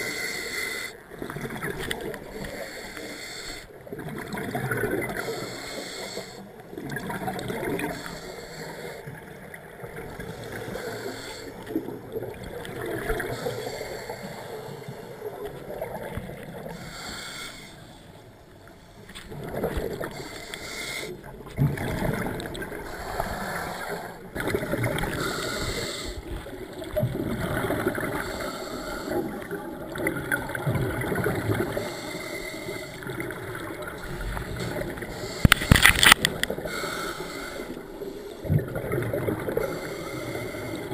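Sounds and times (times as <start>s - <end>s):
regulator hissing inhale: 0.0s - 1.0s, 2.3s - 3.7s, 5.2s - 6.5s, 7.8s - 9.1s, 10.3s - 11.8s, 13.2s - 15.3s, 16.7s - 19.2s, 20.0s - 21.3s, 22.8s - 24.3s, 25.1s - 26.4s, 28.1s - 29.4s, 31.6s - 38.5s, 39.6s - 40.9s.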